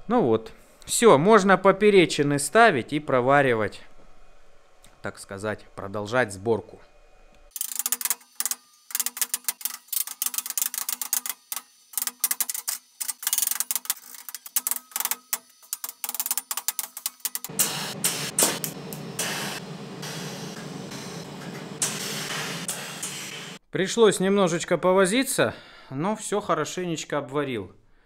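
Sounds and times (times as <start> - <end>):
welding arc hissing: 7.5 - 23.6
metal sheets clinking and rattling: 7.6 - 17.5.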